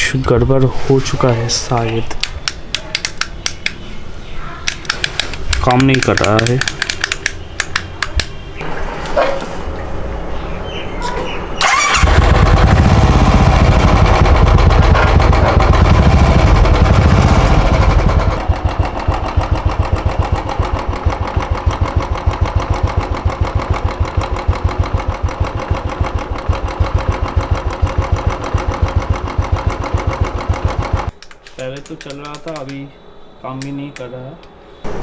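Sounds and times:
motorcycle engine revving and idling: 11.6s - 31.1s.

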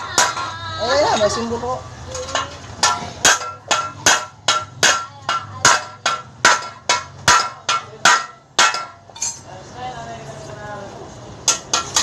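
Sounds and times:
hammer striking metal: 2.2s - 9.4s, 11.4s - 12.0s.

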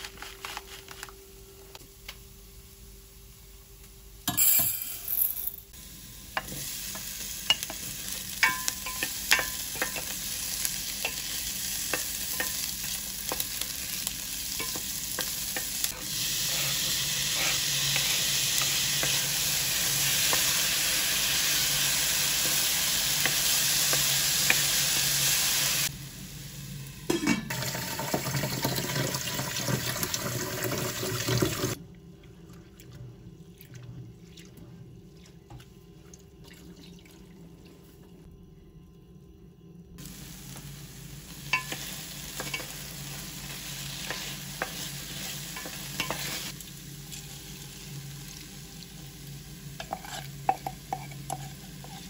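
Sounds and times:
food sizzling in a frying pan: 5.7s - 31.8s, 40.0s - 52.0s
utensil scraping a pan: 49.8s - 52.0s.

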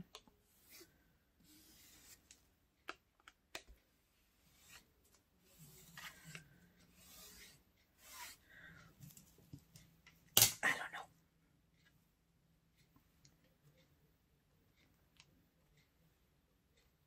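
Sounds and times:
soft rubbing sounds: 0.4s - 2.4s, 4.2s - 8.5s.

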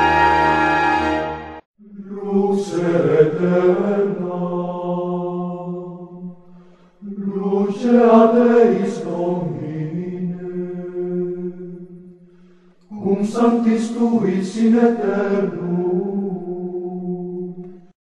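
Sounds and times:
held drone note: 0.0s - 1.6s
chanted vocal music: 0.0s - 18.0s.

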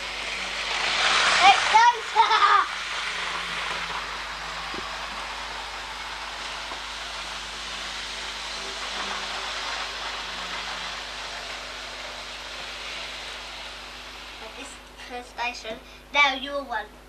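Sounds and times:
model train rolling hiss: 0.0s - 16.8s
faint motor hum: 0.0s - 17.0s.

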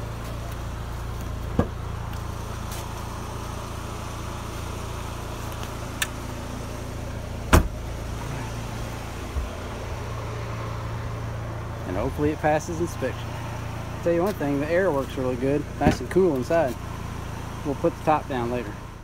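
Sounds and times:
car engine idling: 0.0s - 19.0s
car door shutting: 1.5s - 1.8s, 7.4s - 7.8s.

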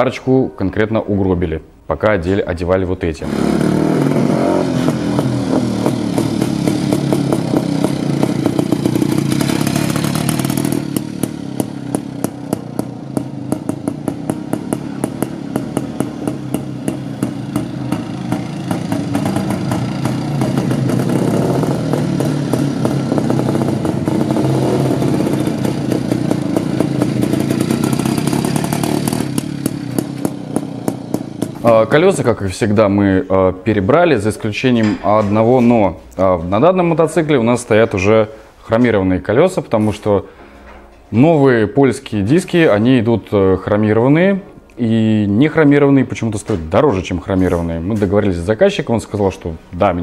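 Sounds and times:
two-stroke motorcycle engine: 3.2s - 32.0s.

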